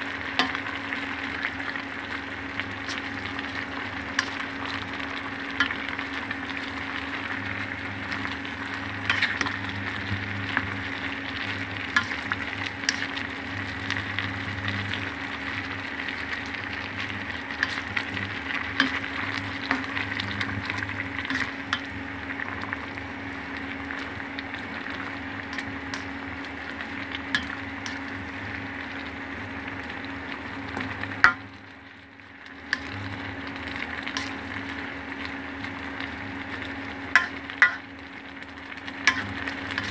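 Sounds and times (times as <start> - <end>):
food sizzling in a pan: 0.0 - 39.9
utensil scraping a pan: 21.2 - 21.9.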